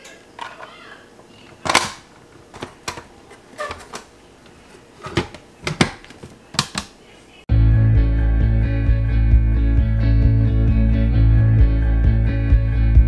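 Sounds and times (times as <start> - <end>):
plastic parts clicking and knocking: 1.6 - 3.1, 5.0 - 7.0.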